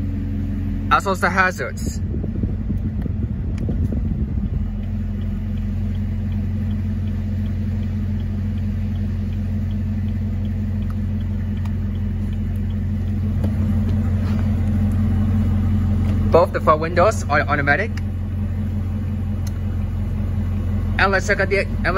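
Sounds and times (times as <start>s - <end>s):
car engine idling: 0.0s - 21.9s
hazard flasher ticking: 4.0s - 14.0s.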